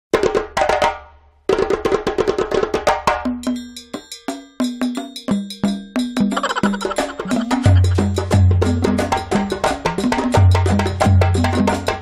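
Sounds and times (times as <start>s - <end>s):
lively cartoon music: 6.0s - 9.6s.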